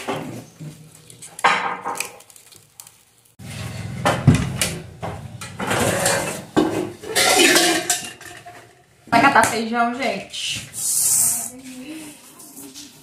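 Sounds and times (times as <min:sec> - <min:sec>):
pots and metal kitchenware clattering: 0:03.4 - 0:09.8.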